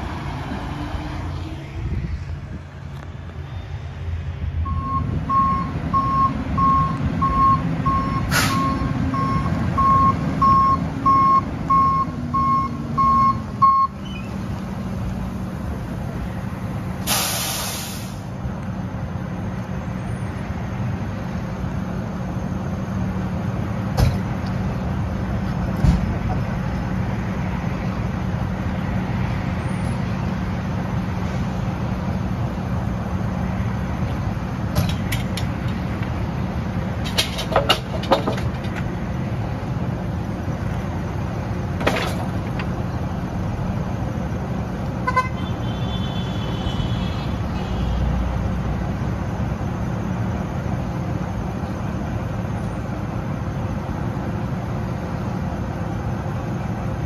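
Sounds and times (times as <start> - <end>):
diesel engine running: 0.0 - 57.0
metal knocks and clanks: 37.0 - 38.9.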